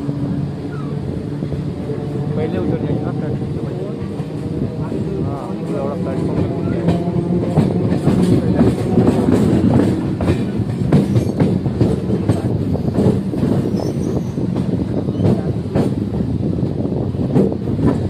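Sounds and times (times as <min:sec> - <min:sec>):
train wheels rumbling on rails: 0:00.0 - 0:18.0
wheels clacking over rail joints: 0:03.9 - 0:16.0.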